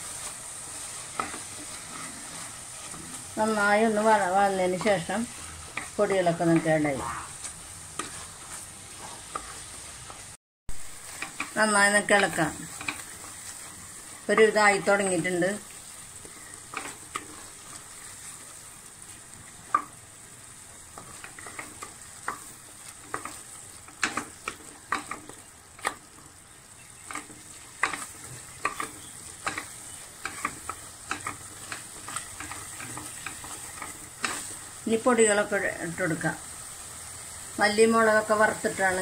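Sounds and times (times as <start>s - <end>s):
wooden spatula scraping pot: 0.0s - 10.4s, 16.3s - 18.5s, 21.0s - 26.0s, 27.0s - 34.6s
hot oil sizzling: 0.0s - 39.0s.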